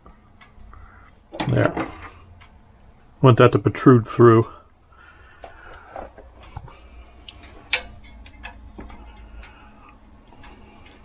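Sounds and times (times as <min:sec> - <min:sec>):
light metal clicks and taps: 0:06.4 - 0:09.6.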